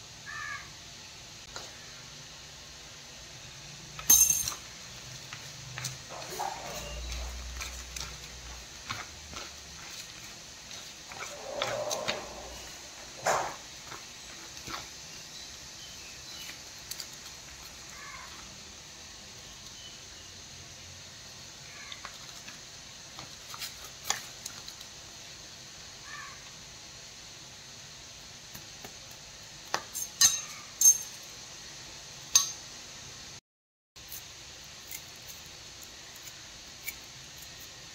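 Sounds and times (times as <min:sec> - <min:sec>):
steady background hiss: 0:00.0 - 0:33.4, 0:34.0 - 0:37.9
kitchen utensils clinking: 0:04.0 - 0:04.7, 0:05.8 - 0:08.5, 0:11.1 - 0:13.7, 0:29.9 - 0:31.3.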